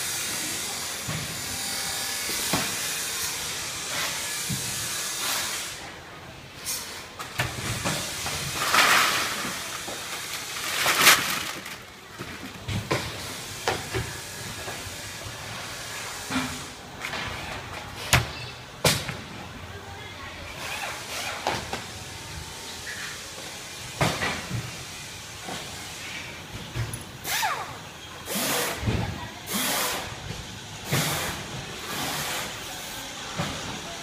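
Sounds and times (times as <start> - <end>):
steady machine hiss: 0.0 - 6.0.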